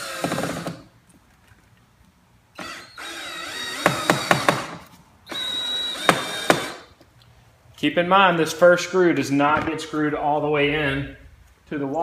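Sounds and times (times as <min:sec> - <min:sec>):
power drill driving screw: 0:00.0 - 0:00.9, 0:02.6 - 0:06.9.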